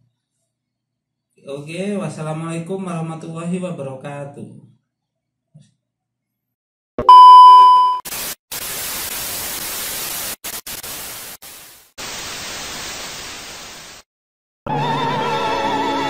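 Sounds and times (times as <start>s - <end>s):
loud steady beep: 7.0s - 8.0s.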